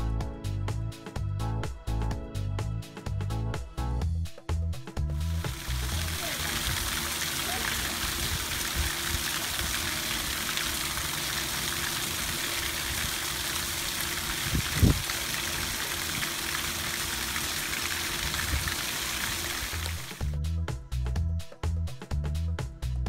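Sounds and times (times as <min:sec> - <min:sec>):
fountain water splashing into pool: 0:05.2 - 0:20.3.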